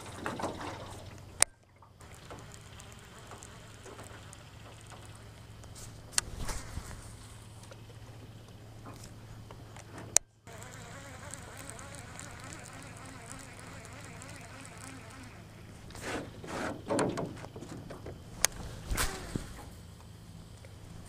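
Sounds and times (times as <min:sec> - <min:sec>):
fishing reel whirring: 0:02.0 - 0:05.6, 0:10.5 - 0:16.0, 0:18.4 - 0:19.8
knocks and rustles: 0:15.8 - 0:19.8.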